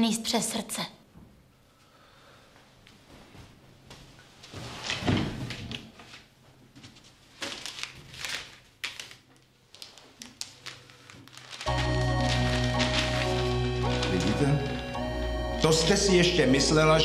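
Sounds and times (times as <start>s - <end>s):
rustling: 4.4s - 15.0s.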